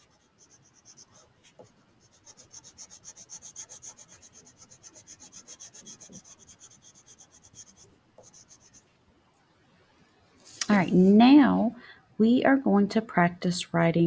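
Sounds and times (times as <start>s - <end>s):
crayon scribbling on paper: 0.0s - 8.8s.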